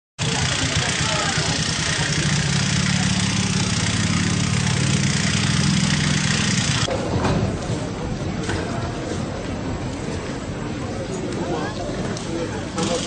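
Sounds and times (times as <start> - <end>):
engine idling: 0.2 - 6.9.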